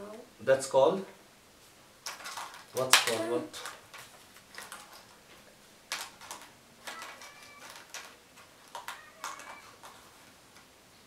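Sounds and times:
plastic bag rustling: 2.0s - 10.4s.

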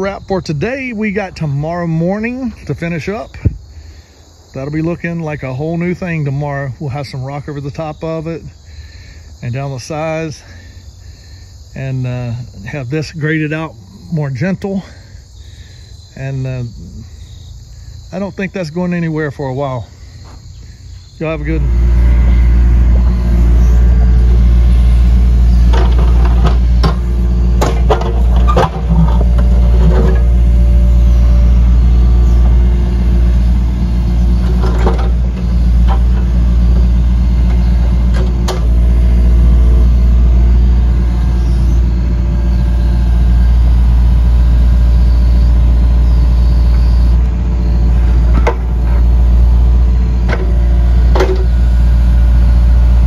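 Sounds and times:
diesel engine running: 0.0s - 53.0s
metal and rock clanking: 23.2s - 31.0s, 34.2s - 39.1s.

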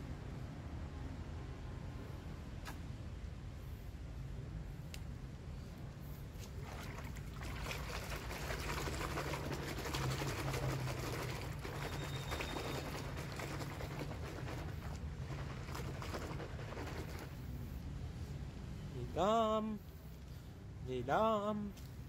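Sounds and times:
hand splashing soapy water: 6.4s - 17.4s.

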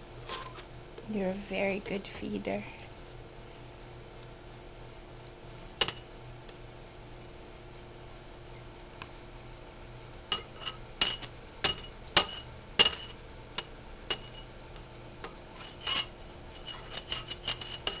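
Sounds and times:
fork clinking on ceramic bowl: 10.4s - 14.5s, 15.6s - 18.0s.

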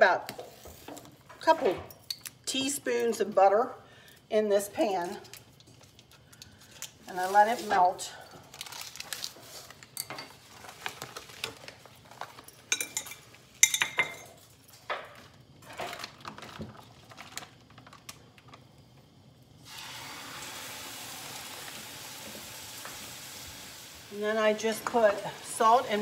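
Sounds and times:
meat sizzling in a pan: 19.6s - 26.0s.

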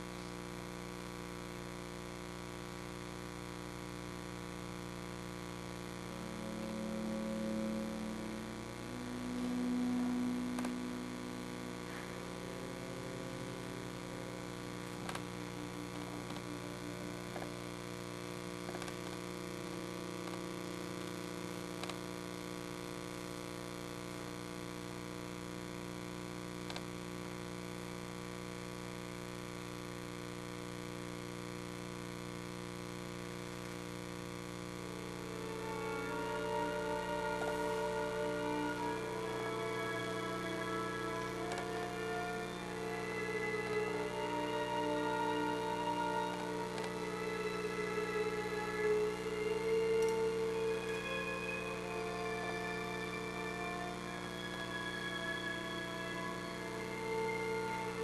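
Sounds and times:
electrical mains hum: 0.0s - 58.0s
low held tones: 4.8s - 22.6s, 34.9s - 58.0s.

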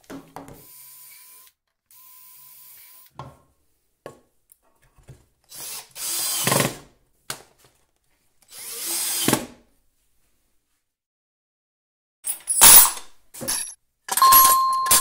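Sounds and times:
cordless drill running: 0.6s - 3.1s, 5.5s - 6.7s, 8.5s - 9.4s.

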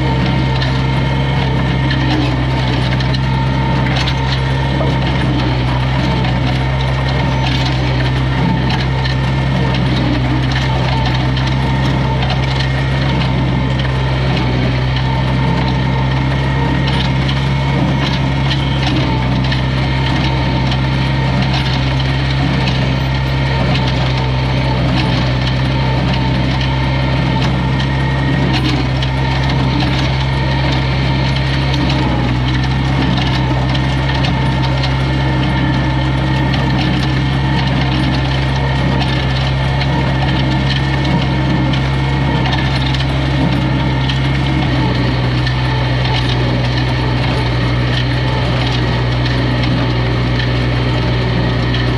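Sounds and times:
tractor engine running: 0.0s - 51.9s.

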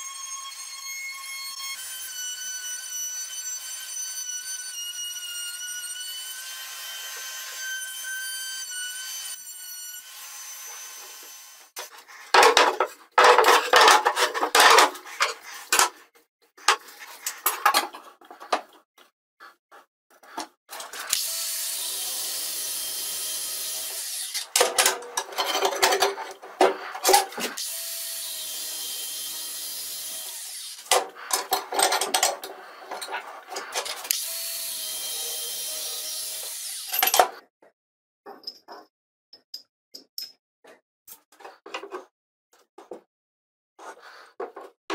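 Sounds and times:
angle grinder cutting steel: 0.0s - 15.8s, 20.7s - 37.4s
power tool cutting wood: 0.0s - 15.8s, 20.7s - 37.4s.

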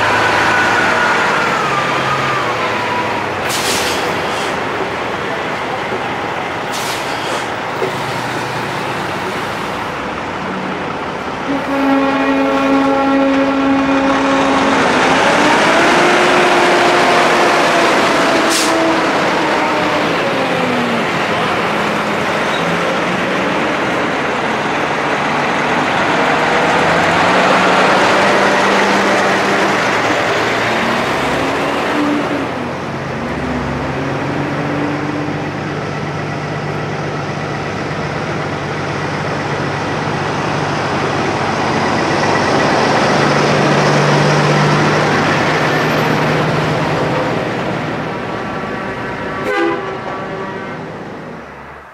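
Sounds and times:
trucks driving past: 0.0s - 51.9s
short sharp hiss: 3.5s - 4.6s, 6.7s - 7.5s
truck air horn: 11.4s - 17.3s, 18.4s - 19.3s, 49.2s - 50.9s.

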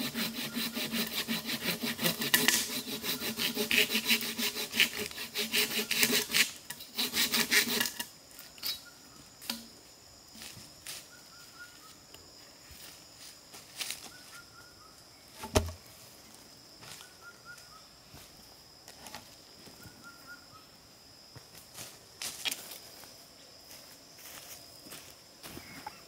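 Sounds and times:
insects droning: 0.0s - 26.0s
log thudding on ground: 15.4s - 15.8s.

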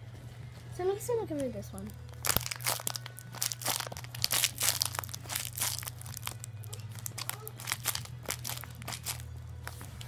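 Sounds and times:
bag crinkling and rustling: 1.9s - 9.9s.

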